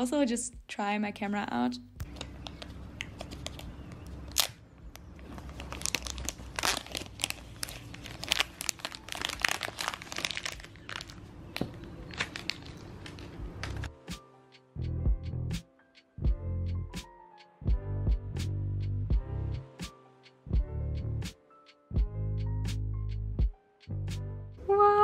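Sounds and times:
plastic wrap crinkling: 2.0s - 13.9s
music: 13.4s - 25.0s.

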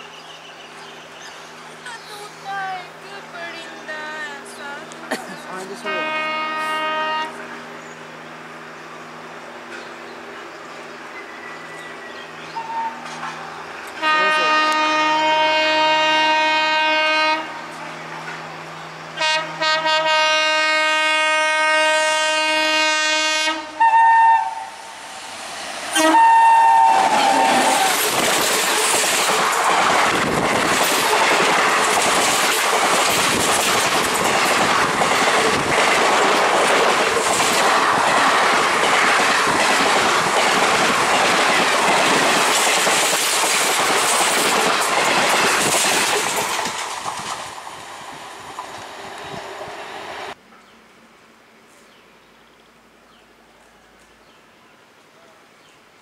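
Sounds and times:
train coaches and wheels passing: 0.0s - 51.0s
train horn blasts: 5.8s - 7.5s, 14.0s - 17.9s, 19.2s - 24.8s, 25.9s - 27.9s.

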